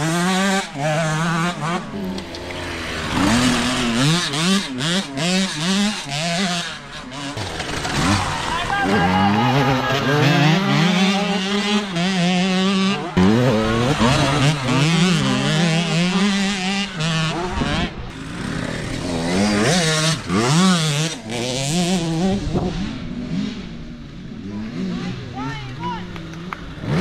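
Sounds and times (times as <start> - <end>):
dirt bike engines revving: 0.0 - 27.0.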